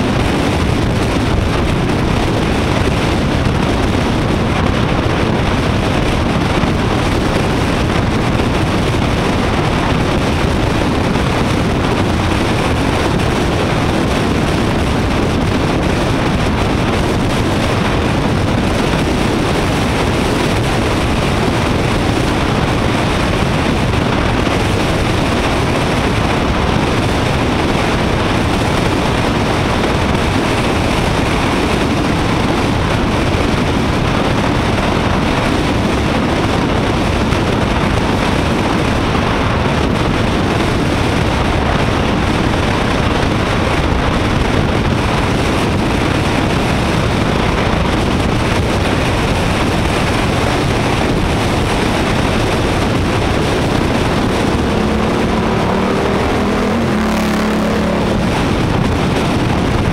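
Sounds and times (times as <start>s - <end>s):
road noise: 0.0s - 59.9s
wind rush over microphone: 0.0s - 59.9s
motorcycle engine: 51.2s - 59.9s.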